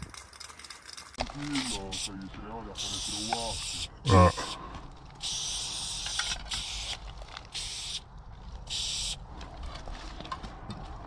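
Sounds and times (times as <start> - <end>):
spray paint can hissing: 2.8 - 3.9, 5.2 - 8.1, 8.7 - 9.2.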